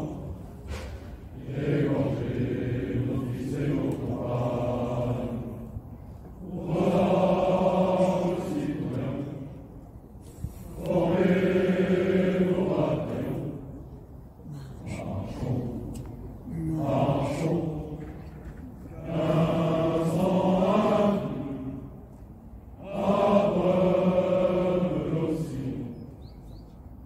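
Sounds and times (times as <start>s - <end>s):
men singing in unison: 6.4s - 9.5s, 16.6s - 18.0s, 19.0s - 21.8s, 22.8s - 26.0s.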